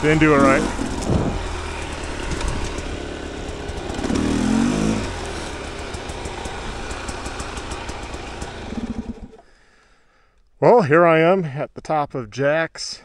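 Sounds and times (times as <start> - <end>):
dirt bike engine revving: 0.0 - 9.5.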